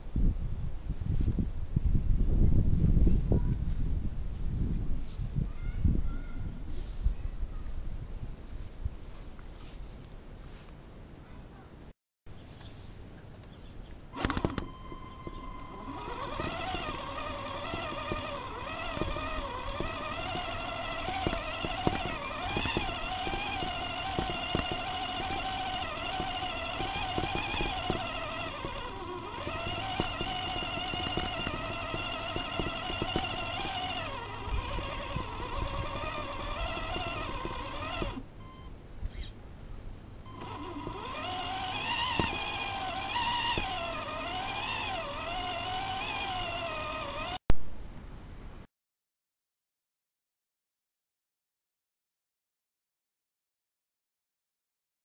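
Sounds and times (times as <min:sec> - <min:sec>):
electric motor whine: 0:14.1 - 0:38.7, 0:40.3 - 0:47.4.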